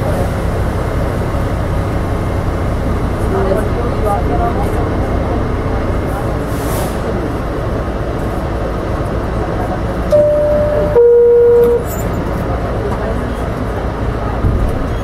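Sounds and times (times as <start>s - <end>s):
subway car rumbling: 0.0s - 15.0s
two-note descending chime: 10.1s - 11.8s.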